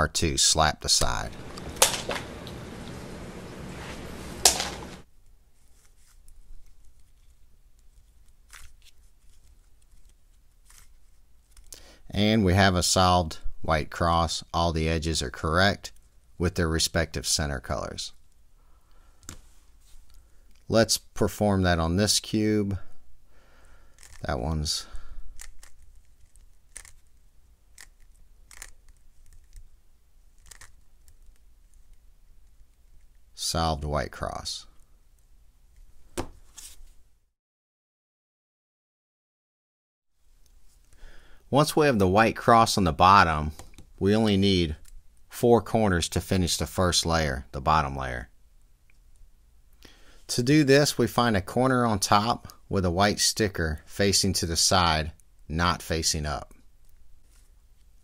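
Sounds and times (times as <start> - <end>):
plastic puzzle cube clacking: 23.9 - 24.2, 25.3 - 32.8
cube layers clicking and rattling: 23.9 - 24.3, 25.3 - 33.2.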